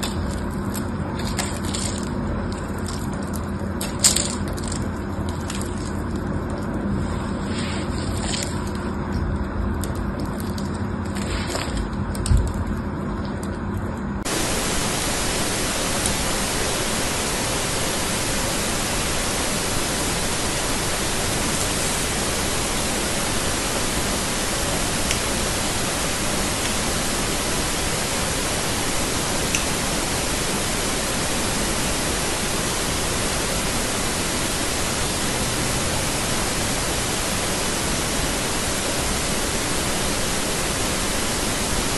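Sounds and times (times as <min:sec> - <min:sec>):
steady even hiss: 0:14.2 - 0:41.9.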